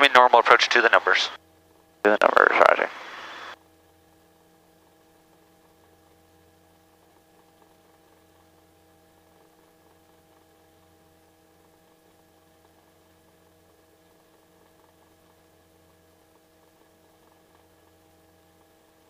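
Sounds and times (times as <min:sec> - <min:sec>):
faint electrical hum: 0:00.0 - 0:19.0
noise burst through headset microphone: 0:02.1 - 0:03.6.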